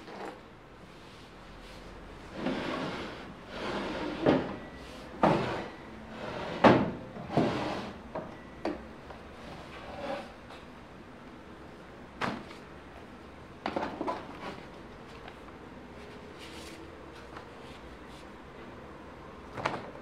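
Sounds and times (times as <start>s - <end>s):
wooden drawers opening and shutting: 2.3s - 4.6s, 5.2s - 8.3s.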